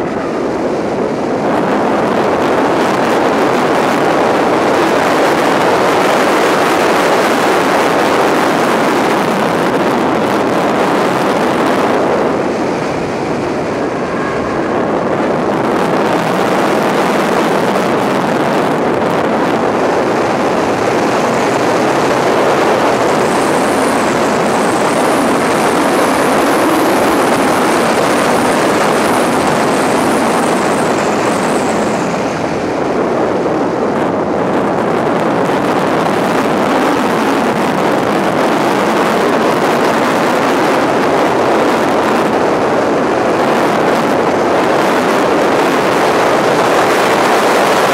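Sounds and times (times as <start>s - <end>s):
faint high whine: 0.0s - 34.1s
car engine and road noise: 0.0s - 47.9s.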